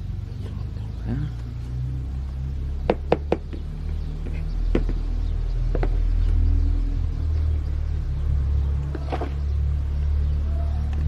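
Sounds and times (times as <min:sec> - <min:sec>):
flowerpot knocking on plastic tub: 0:04.7 - 0:05.0.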